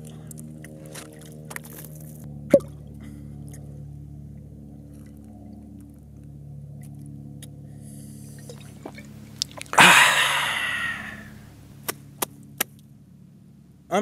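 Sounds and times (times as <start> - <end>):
low steady hum: 0.0 - 14.0
faint water drips: 8.4 - 9.8.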